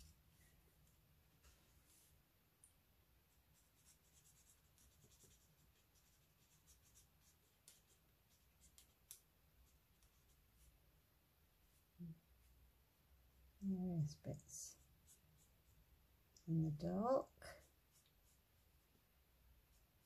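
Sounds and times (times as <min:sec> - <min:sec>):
marker scratching on cardstock: 0:03.5 - 0:10.7.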